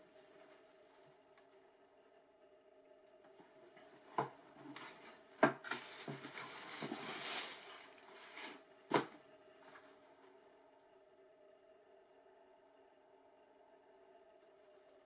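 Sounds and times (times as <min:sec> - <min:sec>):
tissue paper crinkling: 0:04.8 - 0:08.6.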